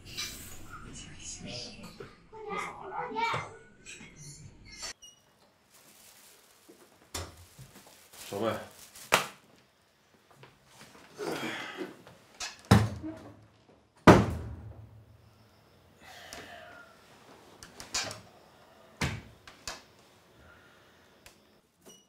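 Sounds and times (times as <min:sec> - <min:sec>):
wooden door banging shut: 0:12.6 - 0:13.0, 0:14.0 - 0:14.8.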